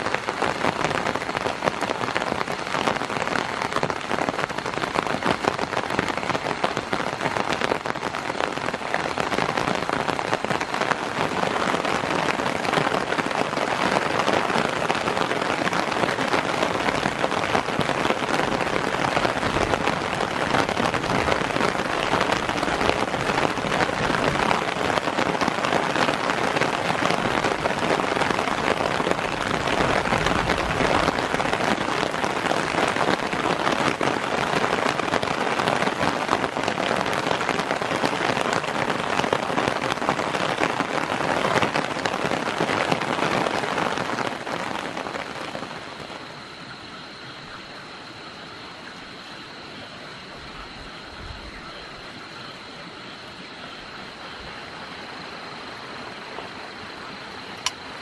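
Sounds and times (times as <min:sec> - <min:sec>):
heavy rain on a tarp: 0:00.0 - 0:58.0.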